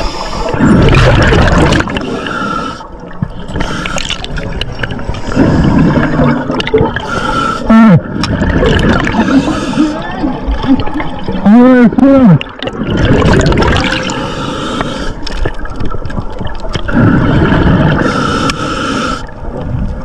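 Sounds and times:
underwater regulator exhaust bubbles: 0.0s - 20.0s.

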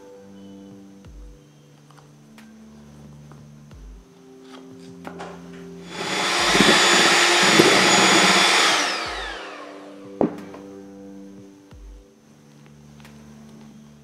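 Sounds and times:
electric hand mixer whirring: 5.8s - 10.1s.

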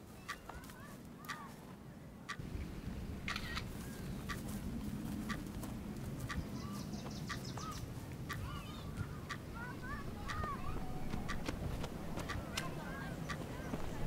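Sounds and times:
birds calling: 0.0s - 14.0s
sharp tick: 9.3s - 13.4s.

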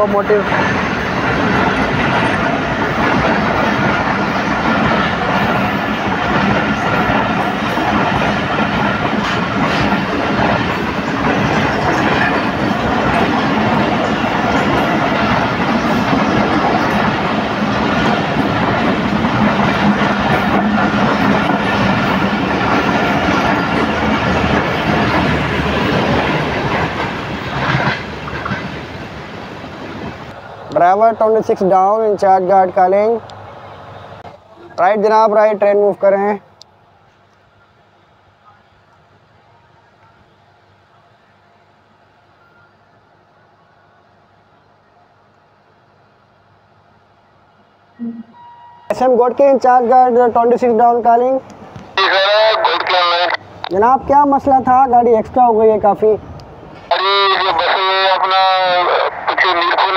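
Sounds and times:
train wheels rushing on rails: 0.0s - 38.1s, 48.9s - 59.9s.

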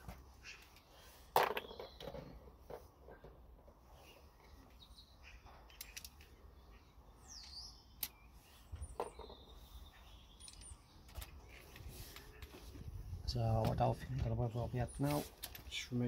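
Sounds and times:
faint birds chirping: 0.0s - 16.0s.

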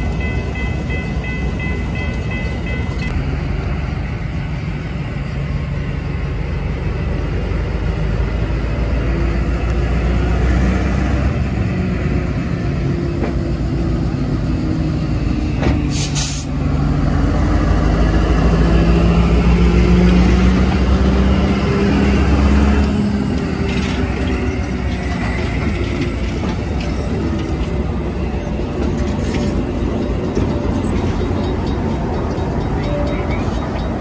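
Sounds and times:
diesel locomotives rumbling past: 0.0s - 34.0s
short hiss of air: 15.9s - 16.6s.

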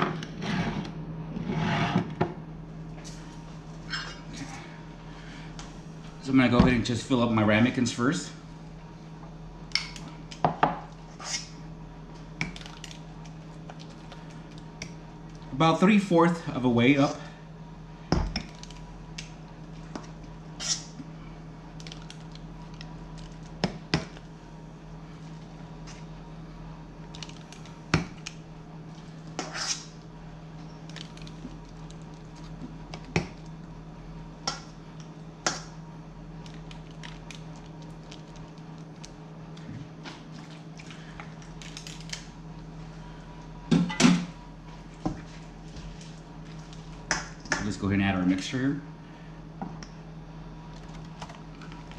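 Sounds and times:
metal scoop scraping bowl: 29.4s - 29.9s.

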